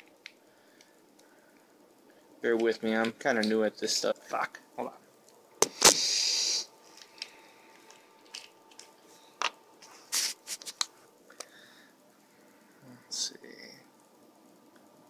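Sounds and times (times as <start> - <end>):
short hiss: 5.6 - 6.7, 9.9 - 10.9.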